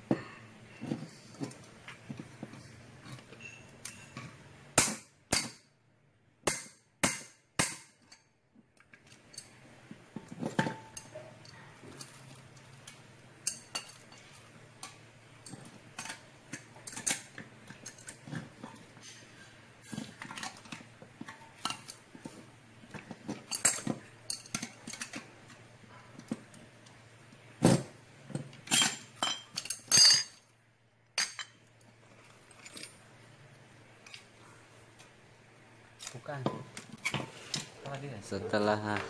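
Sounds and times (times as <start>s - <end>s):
hand tools clinking on metal: 28.6s - 30.4s.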